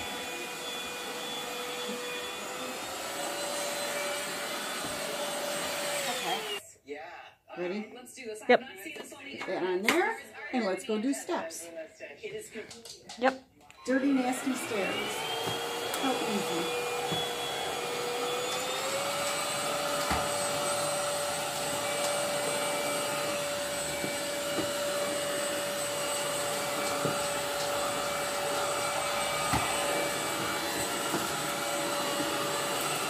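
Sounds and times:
stick vacuum motor whine: 0.0 - 6.6, 13.9 - 33.0.

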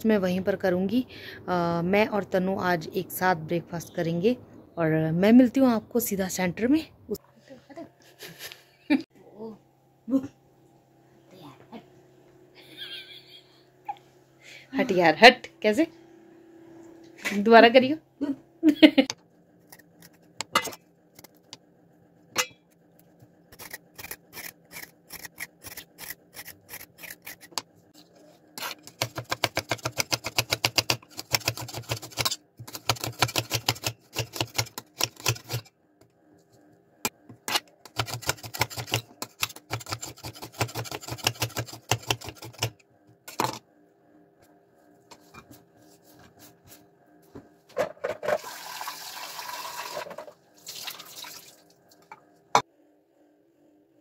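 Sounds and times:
tap water running: 48.3 - 51.8.

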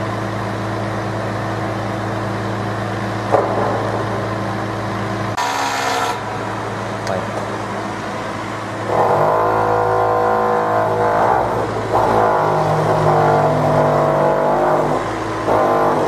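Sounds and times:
low machine hum: 0.0 - 16.0
heavy engine revving: 3.3 - 16.0.

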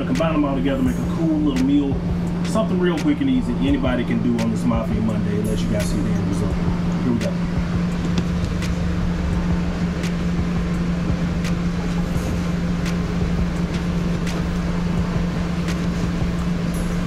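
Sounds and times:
loud mechanical hum: 0.0 - 17.0
rushing noise: 0.0 - 17.0.

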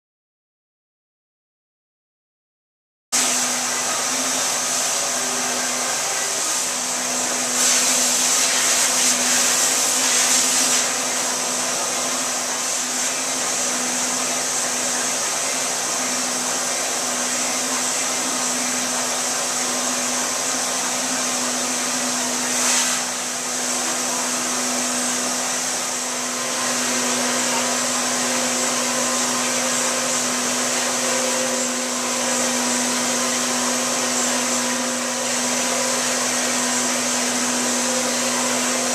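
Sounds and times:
cleaning machine motor whine: 3.2 - 38.9
hiss: 6.0 - 11.0.

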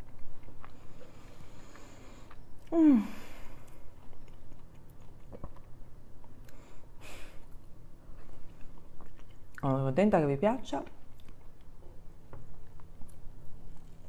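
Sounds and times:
woman chewing: 0.0 - 9.7, 11.0 - 14.0
woman humming mm: 2.6 - 3.5
short breath: 6.5 - 7.4.

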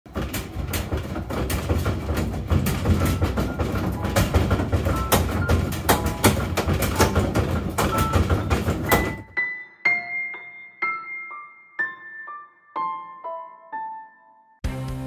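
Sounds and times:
tub knocking against cabinet: 0.1 - 9.3
washing machine spin rumbling: 0.1 - 9.3.

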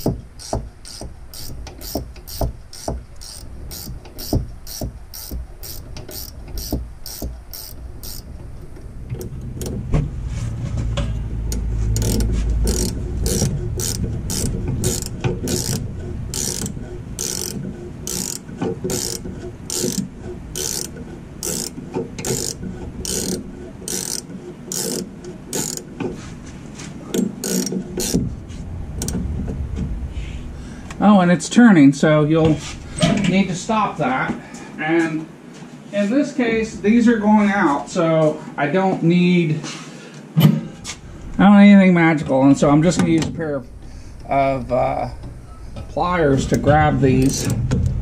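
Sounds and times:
ratcheting wrench clicking: 0.0 - 9.7, 11.5 - 25.9, 27.2 - 28.2
low rumble: 6.8 - 18.1, 27.8 - 33.8, 42.6 - 48.0.

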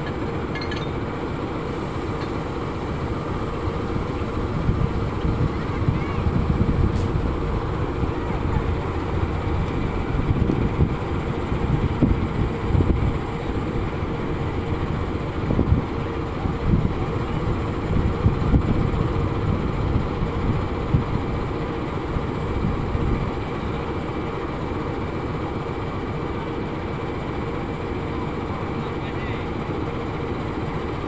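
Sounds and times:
diesel locomotive engine hum: 0.0 - 31.0
wind gusts on microphone: 1.6 - 21.4.

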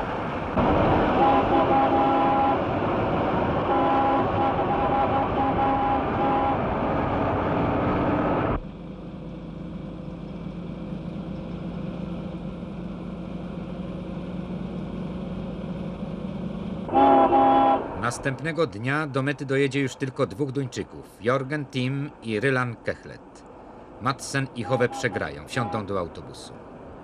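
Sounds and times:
motor vehicle engine running: 0.0 - 17.7.

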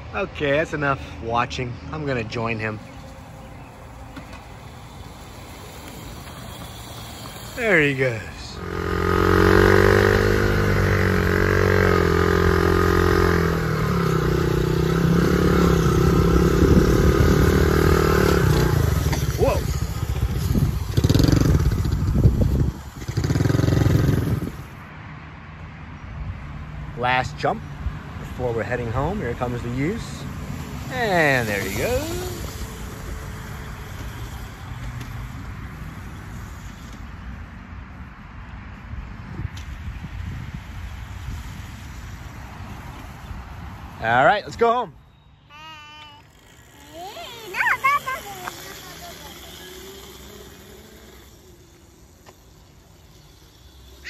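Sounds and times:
outdoor noise: 0.0 - 54.0
dirt bike motor droning: 1.9 - 24.8, 30.8 - 37.2, 44.0 - 54.0.

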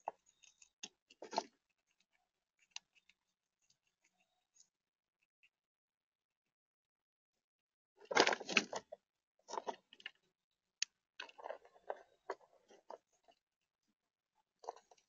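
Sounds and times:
squirrel crunching acorns: 0.0 - 4.3, 11.2 - 13.1.

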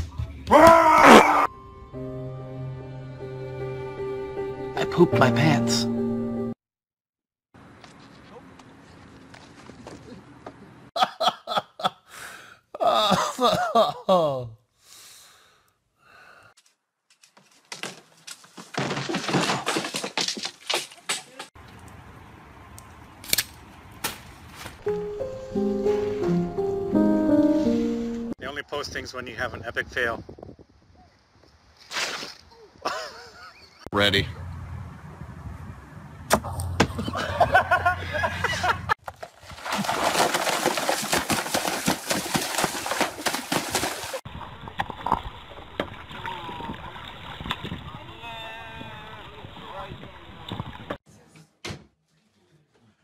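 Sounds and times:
short musical notes: 24.9 - 28.4
splashing: 31.8 - 32.5, 39.1 - 51.0
body sliding through muddy water: 39.2 - 50.0.

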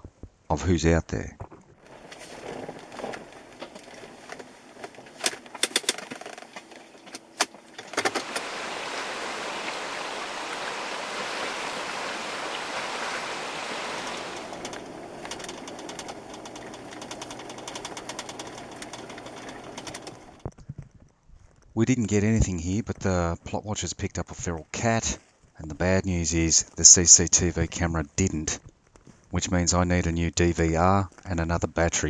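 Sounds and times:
tyres crunching: 1.3 - 21.8
river running over stones: 7.8 - 20.4
low engine hum: 8.0 - 20.4
vehicle knocking and rattling: 14.4 - 20.8.

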